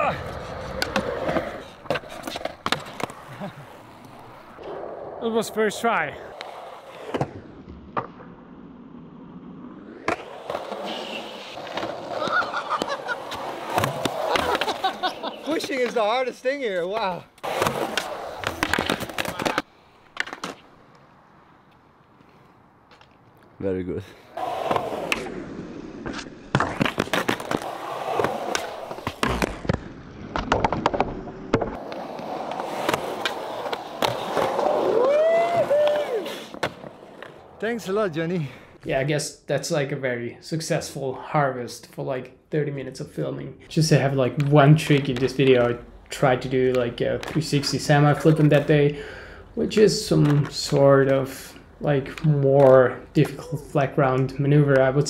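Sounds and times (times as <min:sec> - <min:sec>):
skateboard wheels rolling on concrete: 0:00.0 - 0:55.0
skateboard clacking on ground: 0:16.8 - 0:20.6
skateboard clacks: 0:16.8 - 0:20.6, 0:44.3 - 0:48.7, 0:49.6 - 0:53.4
person calling out: 0:53.4 - 0:53.8.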